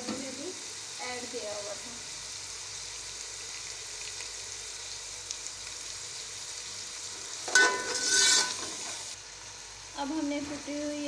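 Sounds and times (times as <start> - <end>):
food sizzling in oil: 0.0 - 11.0
metal spoon clanking on pan: 7.5 - 9.0.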